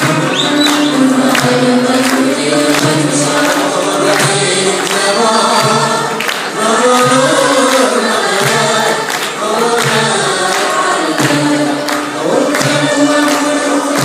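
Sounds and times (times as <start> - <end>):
choir singing: 0.0 - 14.0
ensemble instruments playing: 0.0 - 14.0
sharp rhythmic beats: 0.0 - 14.0.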